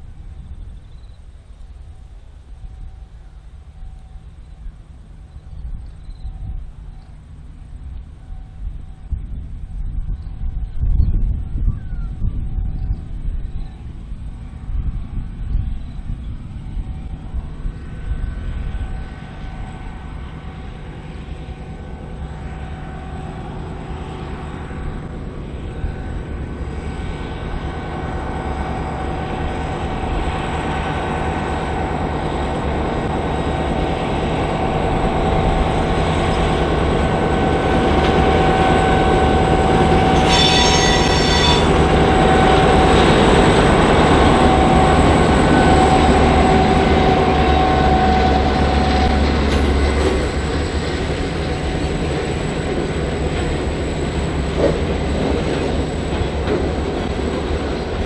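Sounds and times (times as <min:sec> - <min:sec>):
diesel locomotive engine drone: 0:00.0 - 0:58.0
high squeal: 0:38.8 - 0:42.6.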